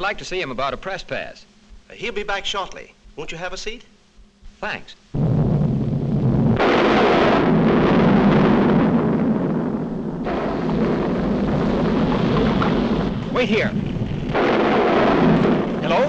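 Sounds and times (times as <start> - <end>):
cartoon volcano rumbling roar: 5.2 - 16.0.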